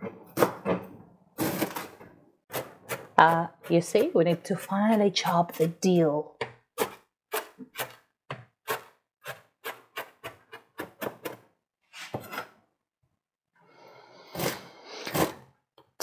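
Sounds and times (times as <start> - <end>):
knife scraping board: 8.6 - 12.5, 14.2 - 15.4.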